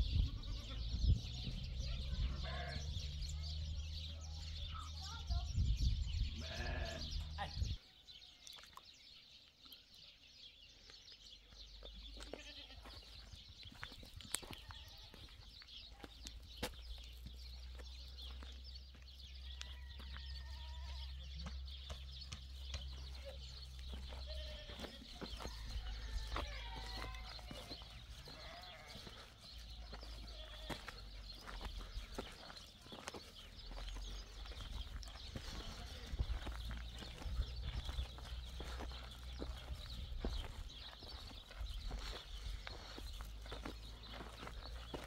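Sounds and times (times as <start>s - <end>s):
livestock bleating: 0.0s - 1.1s, 2.1s - 3.0s, 6.3s - 7.7s, 12.1s - 13.0s, 14.4s - 15.3s, 19.4s - 21.2s, 24.0s - 31.2s, 35.4s - 36.4s
wind rumble on microphone: 0.0s - 3.4s, 5.2s - 7.8s
footsteps crunching on gravel: 11.0s - 45.0s.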